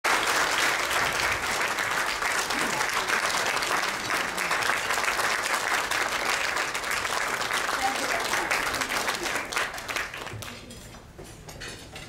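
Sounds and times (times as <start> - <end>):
audience applauding: 0.1 - 10.7.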